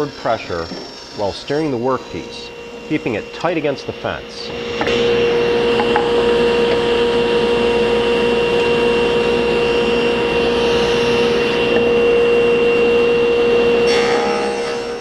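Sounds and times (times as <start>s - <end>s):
table saw blade spinning: 4.6s - 14.3s.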